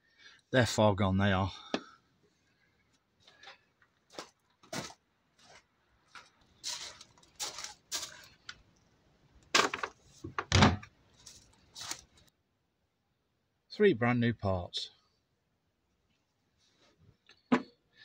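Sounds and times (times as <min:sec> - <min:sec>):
footsteps crunching on gravel: 0:04.1 - 0:08.4, 0:11.2 - 0:12.1.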